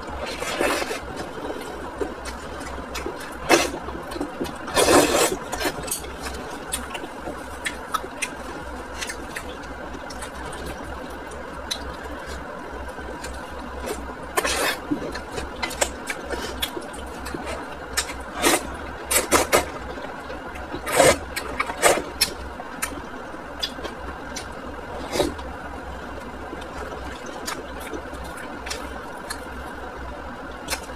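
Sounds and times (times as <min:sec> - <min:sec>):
noodles being slurped: 0:04.6 - 0:06.4.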